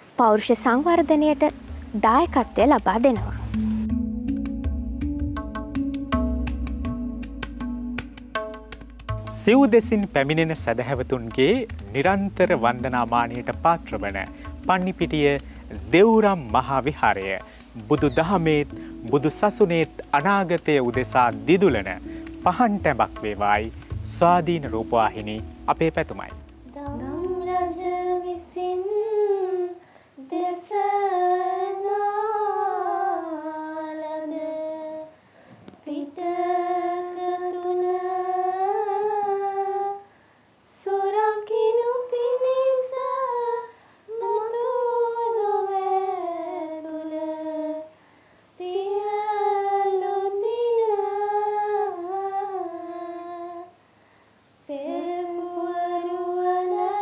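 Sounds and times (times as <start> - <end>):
girls singing in unison: 26.7 - 35.2, 35.8 - 40.1, 40.7 - 53.8, 54.5 - 57.0.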